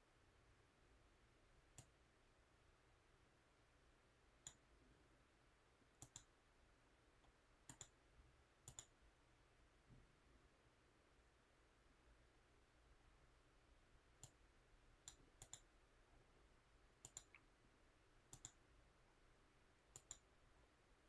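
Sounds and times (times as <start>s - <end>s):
faint mouse button clicks: 6.0s - 6.3s, 7.2s - 8.0s, 8.6s - 9.0s, 17.0s - 17.5s, 18.3s - 18.6s, 19.9s - 20.3s.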